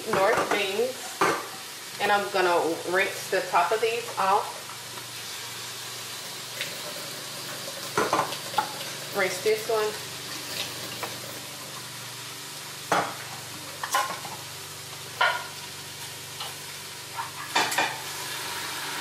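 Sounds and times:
tap water running: 0:04.1 - 0:12.1, 0:17.5 - 0:19.0.

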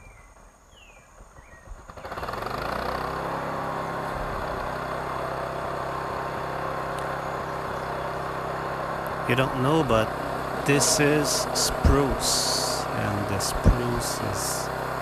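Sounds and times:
bird chirps: 0:00.0 - 0:02.4, 0:07.0 - 0:08.4
sawmill engine running: 0:01.9 - 0:15.0.

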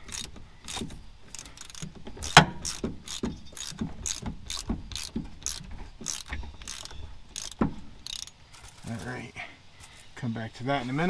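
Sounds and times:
ratchet wrench clicking: 0:00.0 - 0:08.4.

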